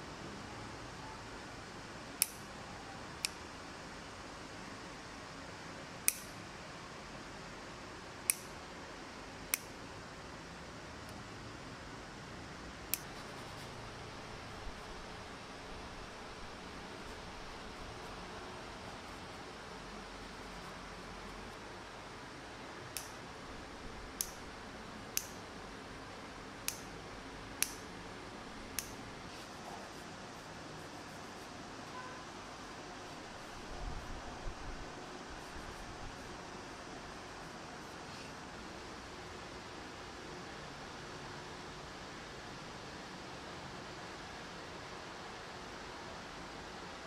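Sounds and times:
steady hiss: 0:01.4 - 0:47.0
light sharp clicks: 0:06.1 - 0:06.4.

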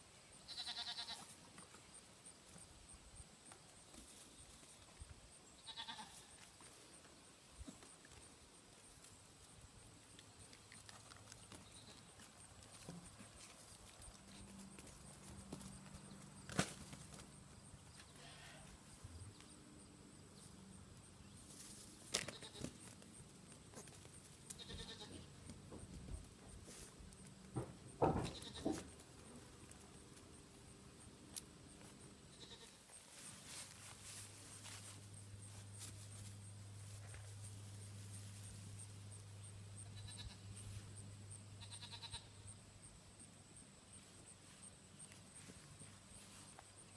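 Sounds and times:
goat kid bleat: 0:00.4 - 0:01.3, 0:05.6 - 0:06.4, 0:18.1 - 0:18.8, 0:22.2 - 0:22.8, 0:24.5 - 0:25.3, 0:28.2 - 0:28.8, 0:32.3 - 0:32.9, 0:39.8 - 0:40.6, 0:41.6 - 0:42.5
hoof knocking on concrete: 0:27.5 - 0:29.0.

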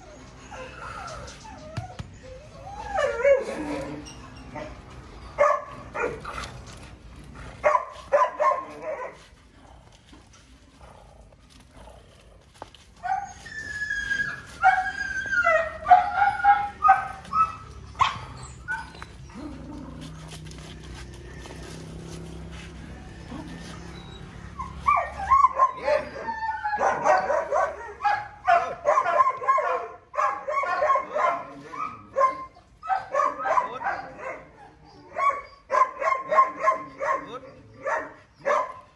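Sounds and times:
puppy whining and yipping: 0:00.0 - 0:06.9, 0:13.0 - 0:28.6, 0:30.4 - 0:37.6.

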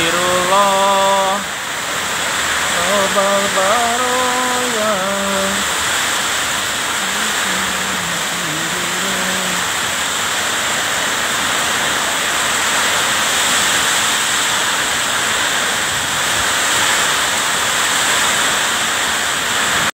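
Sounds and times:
heavy rain: 0:00.0 - 0:20.0
strong wind: 0:04.6 - 0:19.9.

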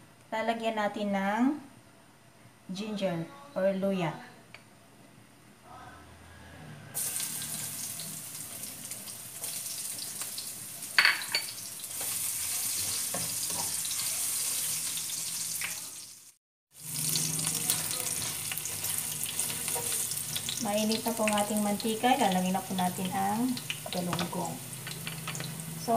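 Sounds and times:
ginger sizzling in oil: 0:07.0 - 0:25.9.

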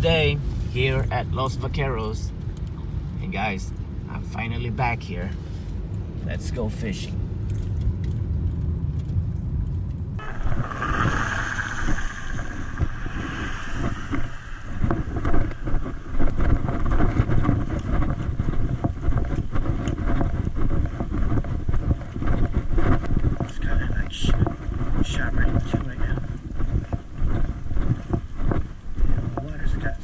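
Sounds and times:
car road and engine noise: 0:00.0 - 0:30.0
wind buffeting microphone: 0:09.6 - 0:30.0.

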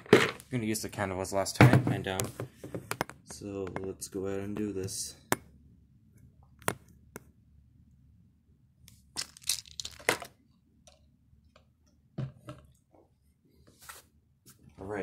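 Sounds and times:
plastic cup crackling: 0:09.1 - 0:10.4
objects knocking on wooden table: 0:12.2 - 0:12.7.

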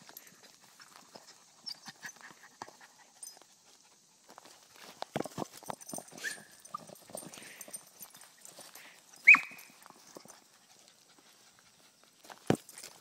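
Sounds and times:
small dog yipping: 0:06.1 - 0:06.9, 0:09.2 - 0:09.8.

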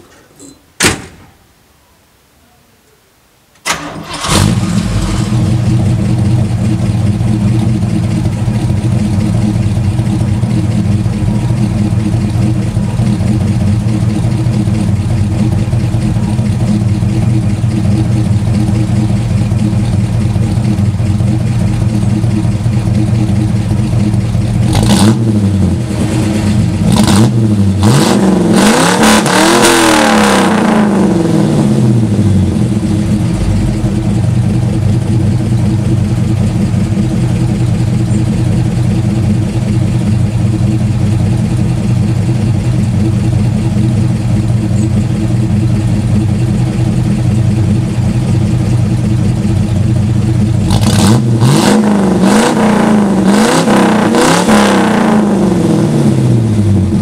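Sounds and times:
car door slamming: 0:00.8 - 0:01.4
car engine starting and idling: 0:03.6 - 0:57.0
engine revving: 0:03.8 - 0:06.4, 0:24.6 - 0:35.1, 0:50.5 - 0:57.0.

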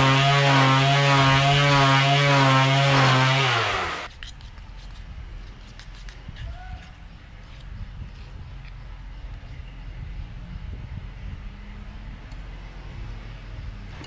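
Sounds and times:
electric sander buzzing: 0:00.0 - 0:04.1.

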